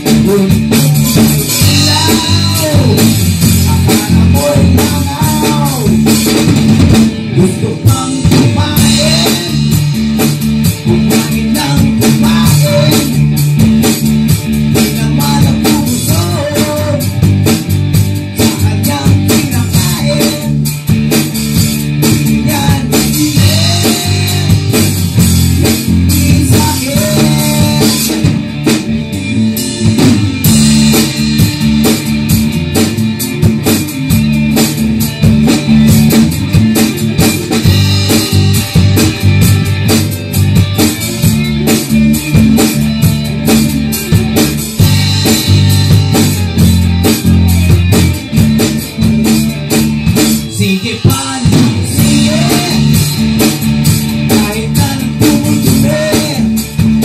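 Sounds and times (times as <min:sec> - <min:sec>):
bass guitar: 0:00.0 - 0:57.0
drum kit: 0:00.0 - 0:57.0
electric guitars: 0:00.0 - 0:57.0.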